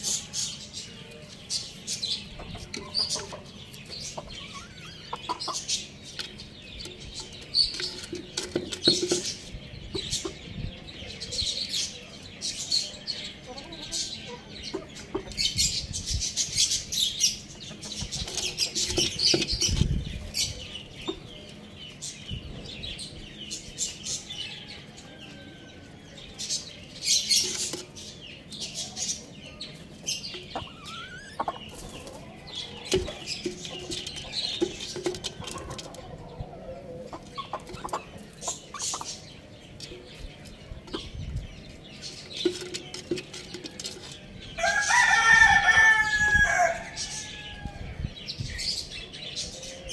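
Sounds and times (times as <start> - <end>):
rooster clucking: 2.3 - 5.8, 30.4 - 39.2
pecking and rustling in clay pot: 42.0 - 44.3.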